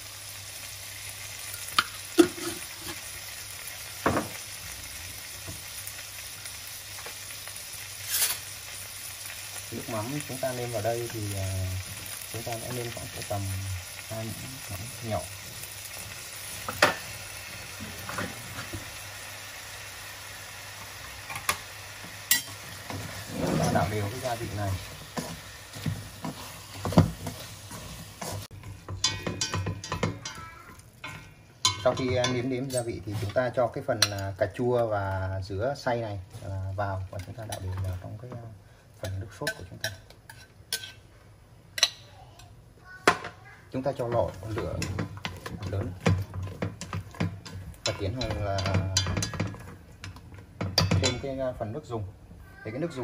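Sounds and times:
food sizzling in a pan: 0.0s - 53.0s
chopsticks clinking on a metal pot: 28.9s - 32.9s, 44.1s - 51.3s.

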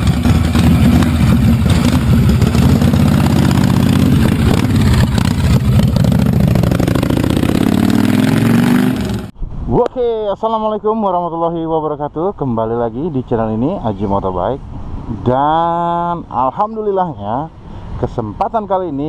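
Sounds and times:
motorcycle engine revving: 0.0s - 9.3s.

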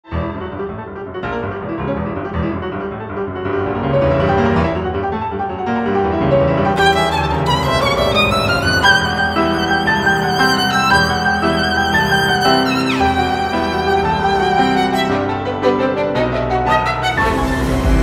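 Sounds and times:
grand piano playing: 0.0s - 18.0s
violin with vibrato: 6.8s - 18.0s.

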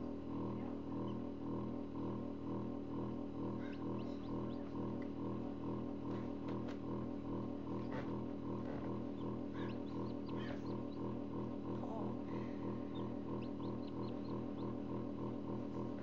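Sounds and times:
incubator fan humming: 0.0s - 16.0s
chicks peeping: 3.5s - 5.1s, 7.7s - 16.0s.

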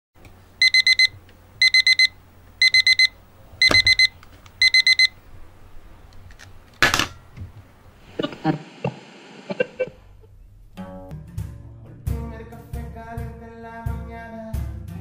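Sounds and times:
digital alarm clock beeping: 0.6s - 5.2s.

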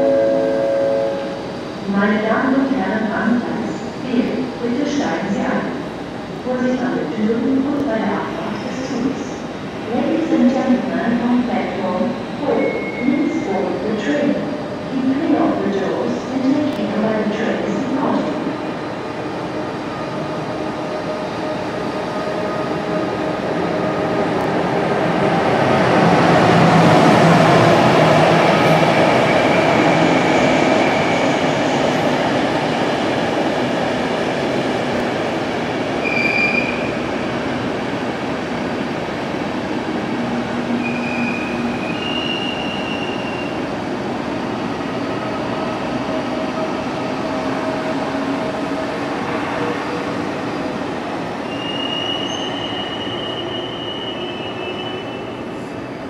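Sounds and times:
high wheel squeals: 36.0s - 36.9s, 40.8s - 43.6s, 51.4s - 55.4s.

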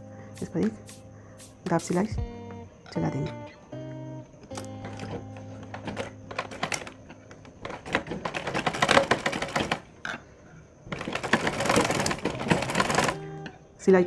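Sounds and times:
sewing machine clattering: 4.8s - 10.2s, 10.9s - 13.3s.

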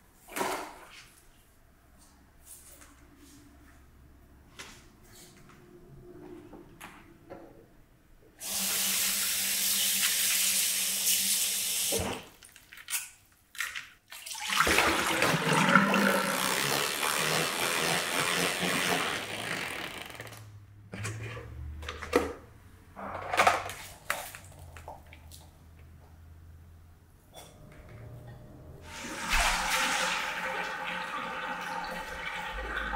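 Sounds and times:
faucet water running: 8.4s - 12.0s, 14.2s - 18.7s, 28.8s - 32.9s
water splashing: 14.1s - 19.3s, 28.8s - 32.9s.

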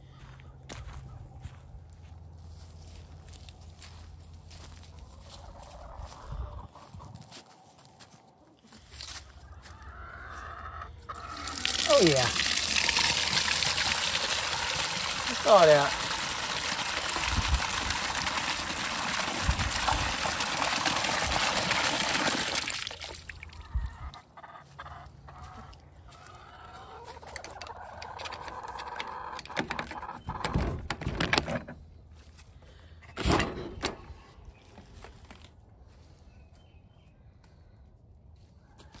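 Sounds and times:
chickens clucking: 4.5s - 22.0s, 23.4s - 30.8s
water gushing from a valve: 11.2s - 23.6s.

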